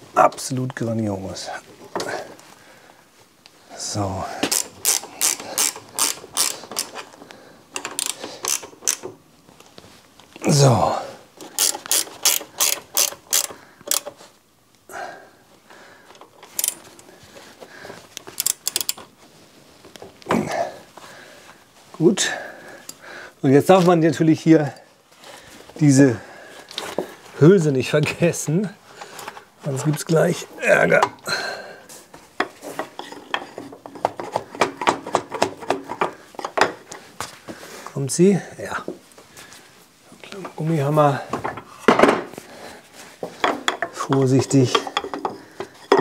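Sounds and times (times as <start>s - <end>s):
small metal parts clinking: 4.4s - 7.1s, 7.8s - 9.1s, 11.4s - 14.1s, 16.2s - 17.1s, 18.3s - 19.1s
reel mower clicking: 4.5s - 7.1s, 7.7s - 9.2s, 11.4s - 14.2s, 16.1s - 17.1s, 18.2s - 19.1s.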